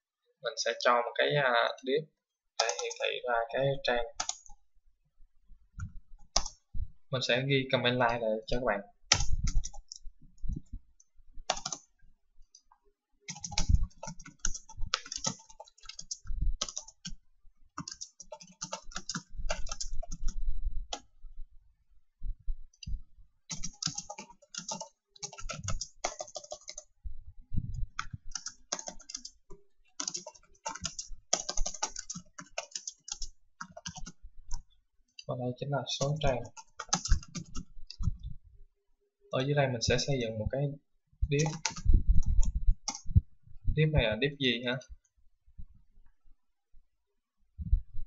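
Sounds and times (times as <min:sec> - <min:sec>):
typing on a keyboard: 0:02.6 - 0:03.1, 0:04.1 - 0:04.6, 0:06.2 - 0:06.6, 0:09.1 - 0:10.0, 0:11.5 - 0:11.9, 0:13.3 - 0:17.2, 0:17.8 - 0:21.1, 0:23.5 - 0:26.9, 0:27.9 - 0:34.7, 0:35.9 - 0:38.2, 0:41.3 - 0:43.1.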